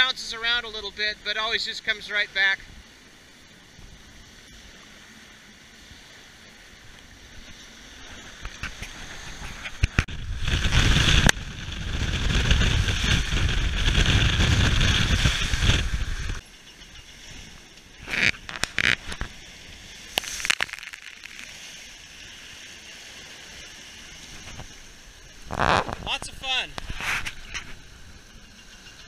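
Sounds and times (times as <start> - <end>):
water rushing along a boat hull: 0.0 - 29.0
wind on the microphone: 6.8 - 16.4, 23.2 - 29.0.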